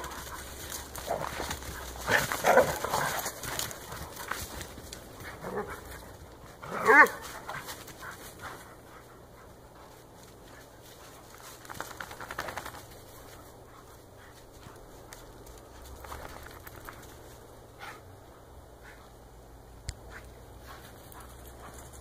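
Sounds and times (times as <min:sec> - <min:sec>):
dog panting: 0:00.0 - 0:06.2, 0:07.2 - 0:11.7, 0:12.5 - 0:16.1, 0:20.0 - 0:22.0
dogs scuffling in snow: 0:00.0 - 0:18.1.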